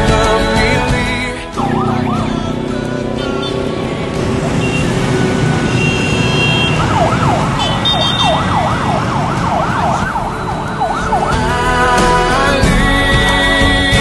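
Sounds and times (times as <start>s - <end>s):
street traffic noise: 0.0s - 14.0s
yelp siren wailing: 1.6s - 11.4s.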